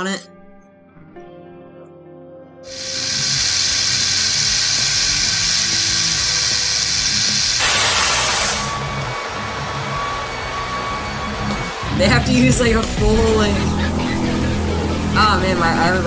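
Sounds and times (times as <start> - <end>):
compressed air jet hissing: 2.7 - 8.9.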